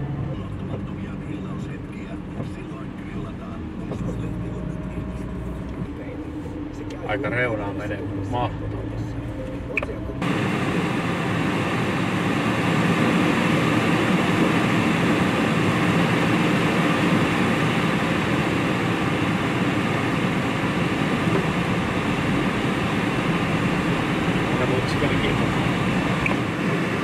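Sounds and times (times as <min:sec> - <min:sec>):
car engine: 0:00.0 - 0:27.0
car tyres on wet slushy road: 0:10.2 - 0:27.0
heater fan: 0:10.2 - 0:27.0.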